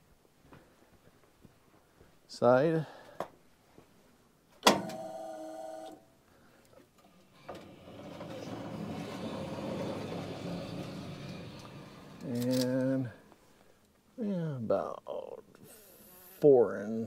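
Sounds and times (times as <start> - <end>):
rustling scraping noise: 7.4 - 13.8
small electric motor whirring: 15.6 - 16.5.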